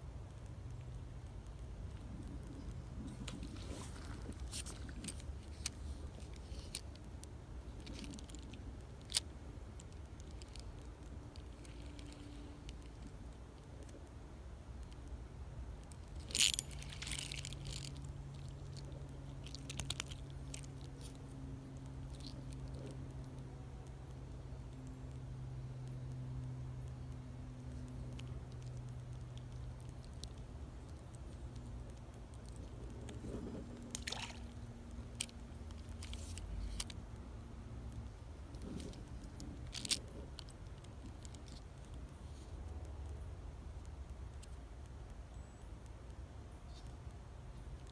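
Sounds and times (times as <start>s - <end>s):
light clicks and rustles: 0.0s - 47.9s
low steady rumble: 0.0s - 47.9s
steady low hum: 0.0s - 47.9s
fish splashing in water: 33.8s - 34.8s.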